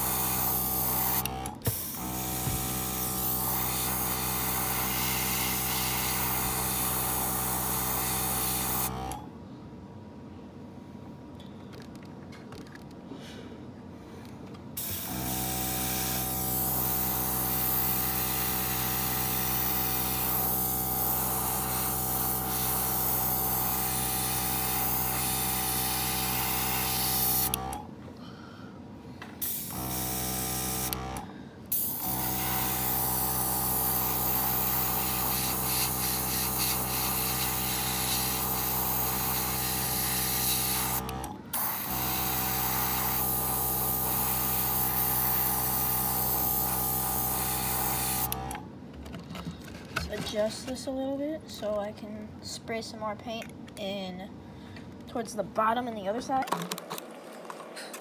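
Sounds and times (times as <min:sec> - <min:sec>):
air compressor motor hum: 0:00.0 - 0:09.3, 0:14.8 - 0:28.0, 0:29.3 - 0:48.6.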